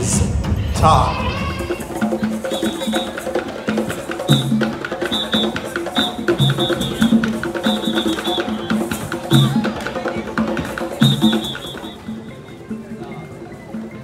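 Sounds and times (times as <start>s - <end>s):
hand drums playing fast rhythm: 1.4s - 12.4s.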